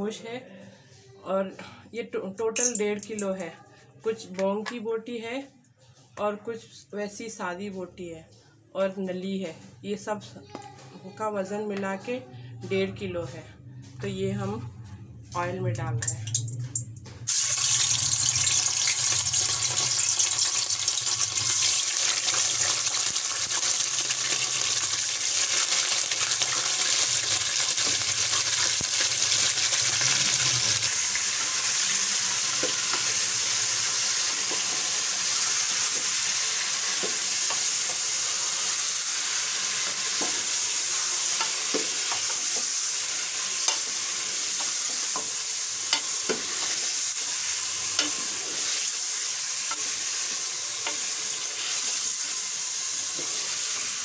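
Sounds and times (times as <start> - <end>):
meat sizzling in hot oil: 17.3 - 54.0.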